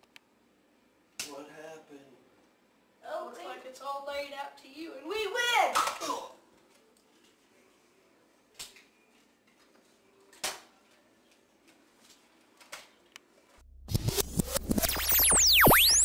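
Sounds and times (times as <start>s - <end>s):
electronic transition effect: 13.7s - 16.0s
sweeping synthesizer tones: 13.7s - 16.0s
rapid clicks: 13.9s - 16.0s.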